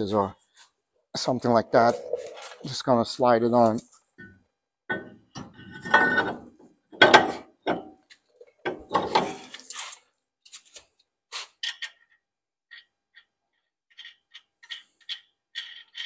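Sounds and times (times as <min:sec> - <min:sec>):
metal scraping and clunking: 0:01.4 - 0:02.8, 0:04.9 - 0:07.4.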